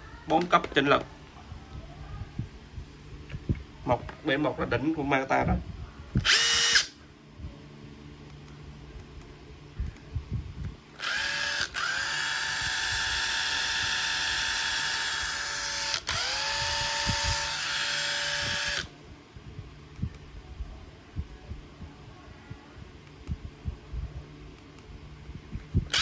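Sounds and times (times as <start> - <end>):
impact driver motor whining: 6.2 - 6.9, 11.0 - 18.9.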